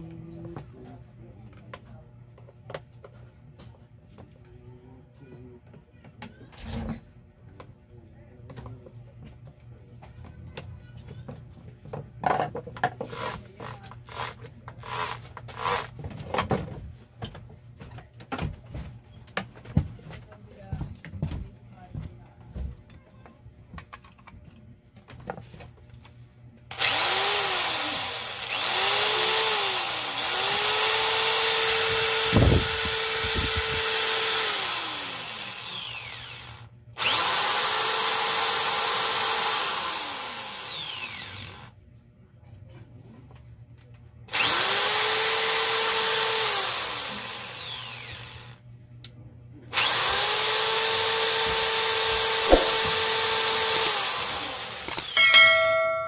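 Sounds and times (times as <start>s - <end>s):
electric drill motor whining: 13.1s - 15.9s, 26.7s - 41.7s, 44.3s - 48.6s, 49.7s - 55.3s.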